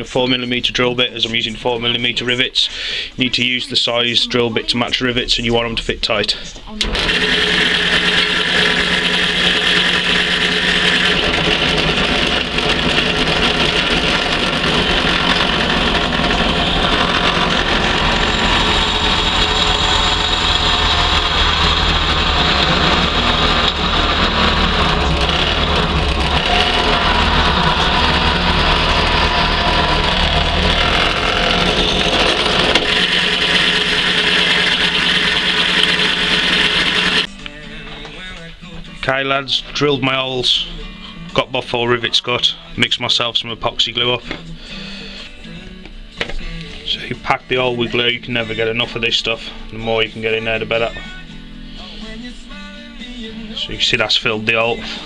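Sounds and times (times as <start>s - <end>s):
pillar drill motor hum: 6.8s - 37.3s.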